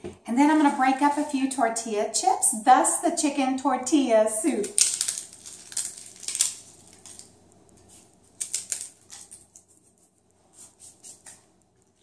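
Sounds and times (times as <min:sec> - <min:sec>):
tortilla chips crunching: 0:04.6 - 0:12.0.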